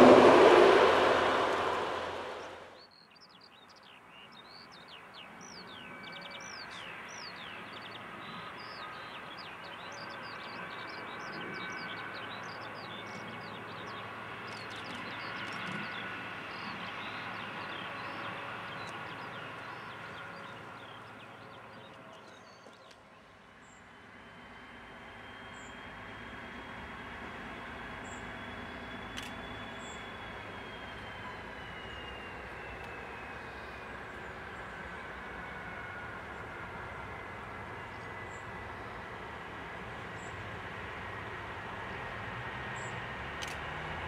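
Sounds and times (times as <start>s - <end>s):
distant diesel train rumble: 0.0s - 2.8s, 5.2s - 44.0s
train passing: 0.0s - 2.9s, 5.7s - 44.0s.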